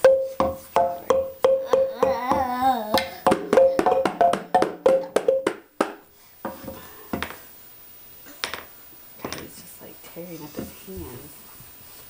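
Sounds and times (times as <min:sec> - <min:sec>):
wooden slit drum hits: 0:00.0 - 0:06.0
frame drum taps: 0:00.0 - 0:07.4.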